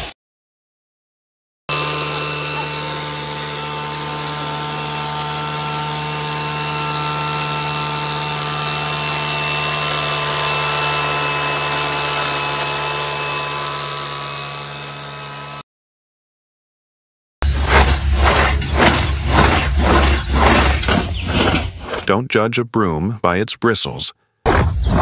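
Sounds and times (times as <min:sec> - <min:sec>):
cutter bar shearing bushes: 0:01.7 - 0:15.6, 0:17.4 - 0:22.1
small petrol engine running: 0:01.7 - 0:15.6, 0:17.5 - 0:22.0.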